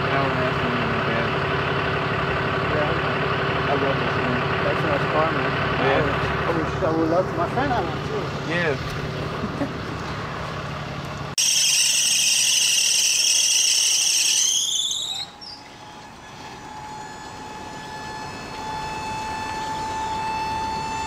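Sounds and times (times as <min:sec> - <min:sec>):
low engine hum: 0:00.0 - 0:11.4, 0:14.2 - 0:21.0
car squealing: 0:11.4 - 0:21.0
faint steady whine: 0:11.4 - 0:21.0.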